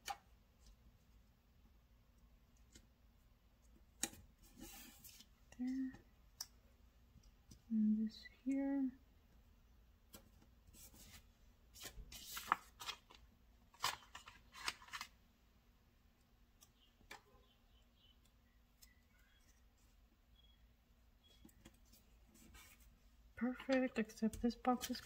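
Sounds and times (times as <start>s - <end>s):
stickers rustling and crackling: 10.7s - 15.2s, 23.4s - 25.0s.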